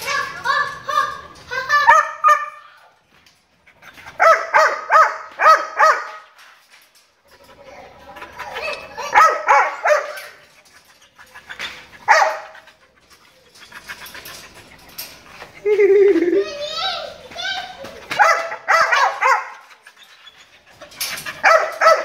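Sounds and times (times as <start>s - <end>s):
dog barking: 1.9s - 2.6s, 4.2s - 6.2s, 9.0s - 10.4s, 12.1s - 12.6s, 18.2s - 19.6s, 21.4s - 22.0s.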